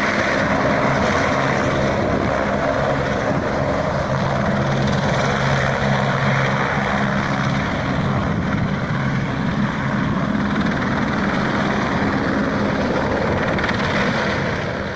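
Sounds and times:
helicopter hovering: 0:00.0 - 0:14.9.

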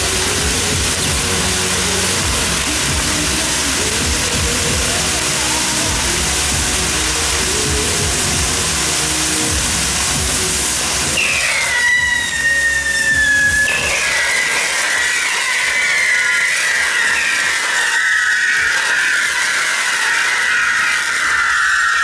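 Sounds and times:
descending firework whistles: 0:00.0 - 0:22.0
spark fountains hissing: 0:00.0 - 0:22.0.

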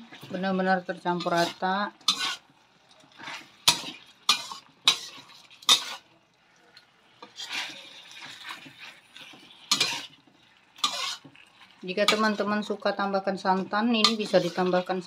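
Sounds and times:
metal spoon scraping a wok: 0:01.1 - 0:06.1, 0:07.2 - 0:12.9, 0:13.5 - 0:15.0.

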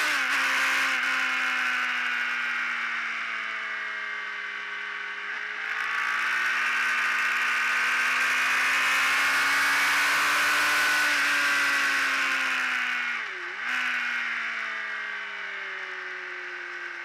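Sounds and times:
motorcycle engine pulling hard: 0:00.0 - 0:02.7, 0:05.4 - 0:15.4.

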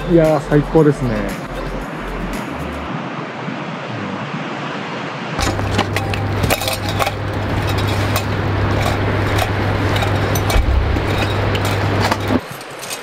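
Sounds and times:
steady low hum: 0:05.4 - 0:12.6
camping gear clinking: 0:05.4 - 0:13.0.

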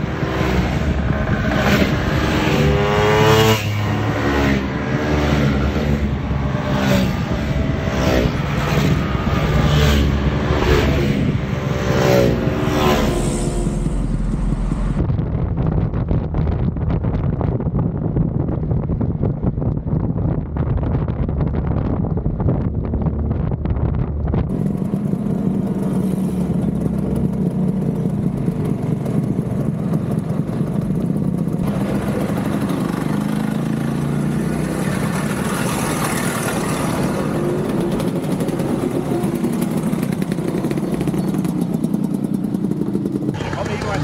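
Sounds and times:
two-stroke scooter engines running: 0:00.0 - 0:15.0, 0:24.5 - 0:44.0.

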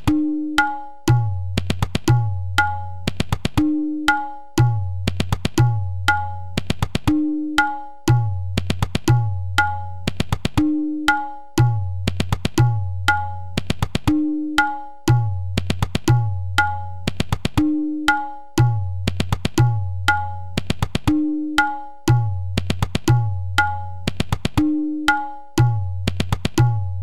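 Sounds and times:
tabla rhythm: 0:00.0 - 0:27.0.

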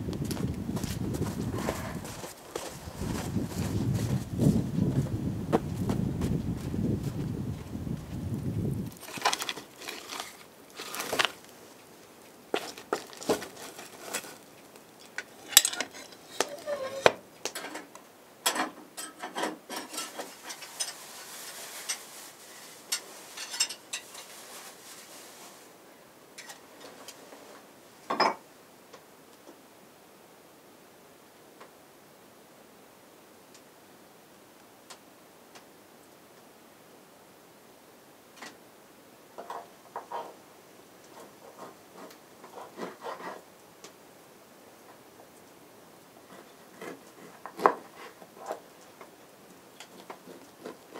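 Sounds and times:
dishes clinking and knocking: 0:28.1 - 0:28.4.

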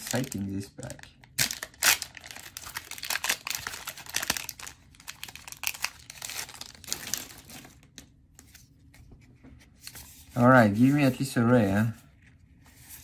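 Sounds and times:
wrapper crinkling and tearing: 0:00.0 - 0:08.1.

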